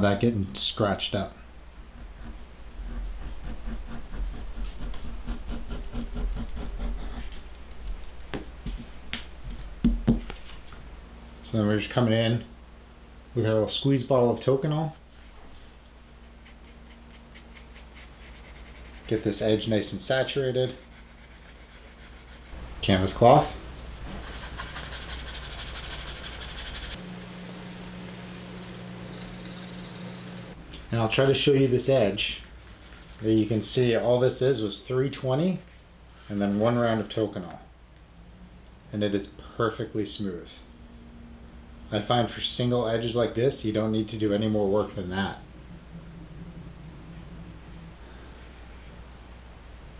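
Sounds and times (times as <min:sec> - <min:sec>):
cloth rubbing leather edge: 0:02.1 - 0:07.4.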